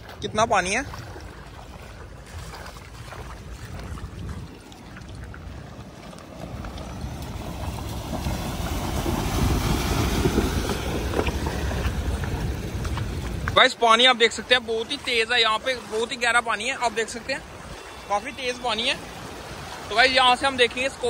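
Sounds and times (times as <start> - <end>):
rushing water: 0.0 - 21.0
wheels splashing through water: 0.0 - 21.0
vehicle engine noise: 3.7 - 15.1.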